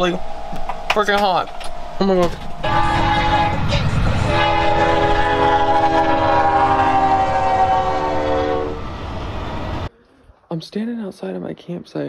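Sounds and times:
train rumbling past: 0.0s - 9.9s
locomotive air horn chord: 1.8s - 8.9s.

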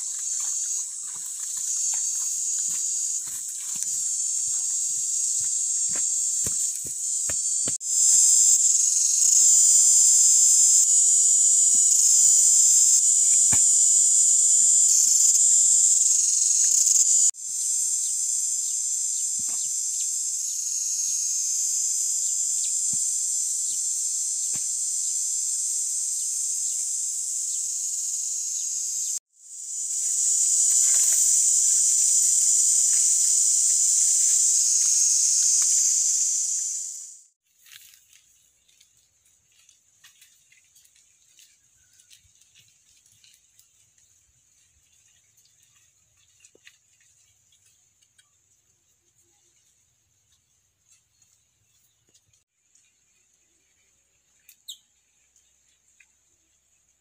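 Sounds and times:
insect chorus shrilling: 0.0s - 37.9s, 54.4s - 55.0s.

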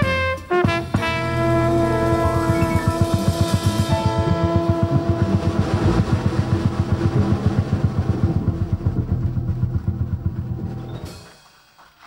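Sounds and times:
held horn note: 0.0s - 7.6s
jazz drum roll and cymbals: 0.0s - 11.8s.

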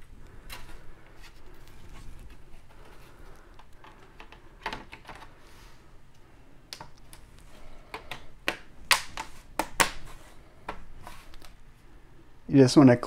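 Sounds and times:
plastic clips snapping into place: 7.9s - 10.0s.

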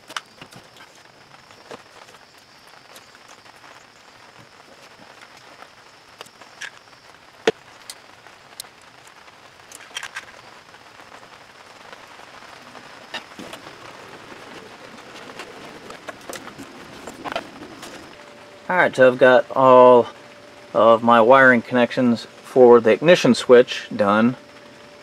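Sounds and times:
wires clicking and rustling: 0.0s - 10.5s, 12.6s - 18.2s
steady background hiss: 0.0s - 25.0s.

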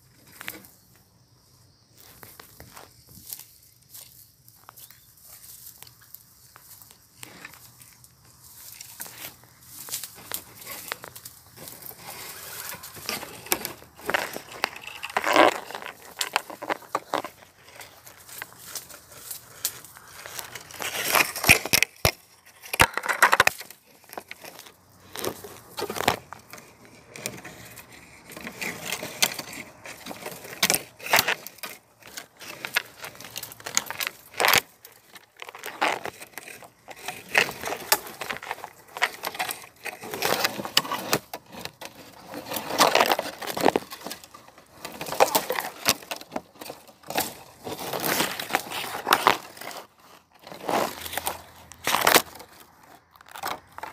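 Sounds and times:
dry vegetation rustling: 1.9s - 53.9s.

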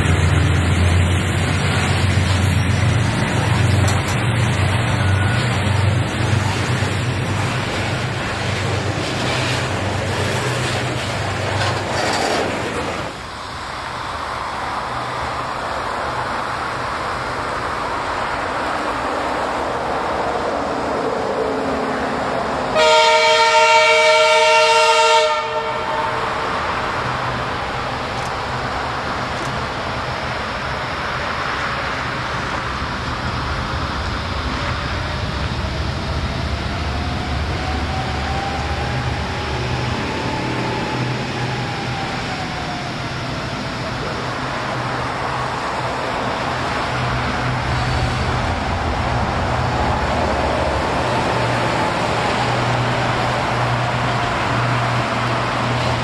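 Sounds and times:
hopper wagons rumbling and clattering: 0.0s - 13.2s
distant locomotive rumbling: 0.0s - 56.0s
locomotive horn: 22.7s - 26.8s.

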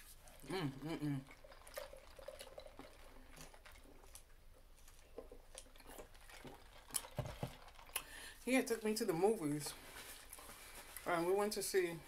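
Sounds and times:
person humming: 0.4s - 1.2s.

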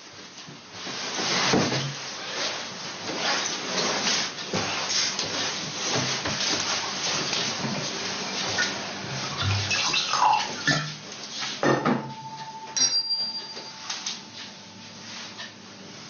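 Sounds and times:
wine glass clinking and ringing: 12.0s - 14.2s.

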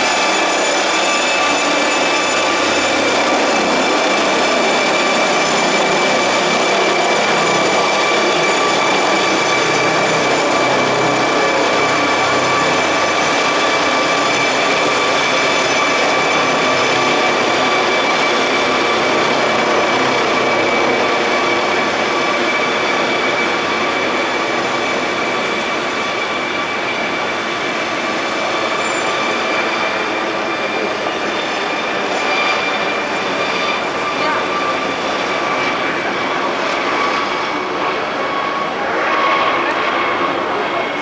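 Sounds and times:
helicopter rotor and engine noise: 0.0s - 41.0s
helicopter turbine whine: 0.0s - 41.0s.

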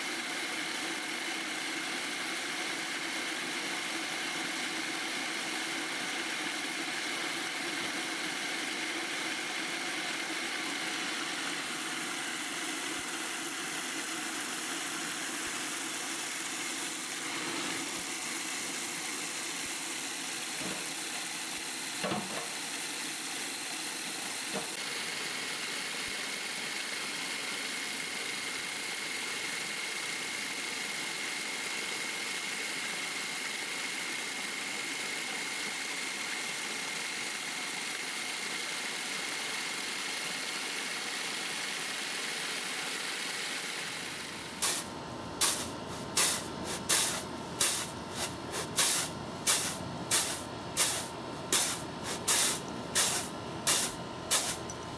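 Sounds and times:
food processor whirring: 0.0s - 54.9s.

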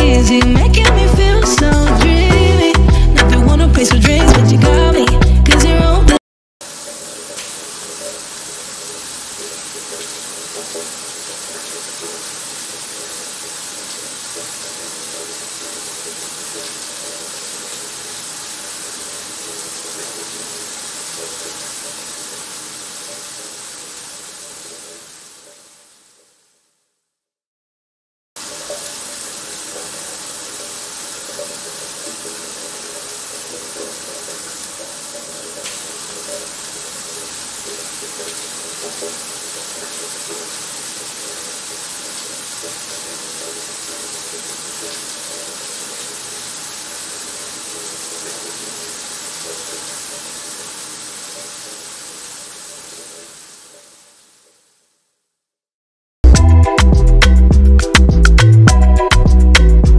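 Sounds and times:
water rushing over rocks: 4.1s - 5.1s
waterfall rushing over rocks: 28.4s - 54.3s.

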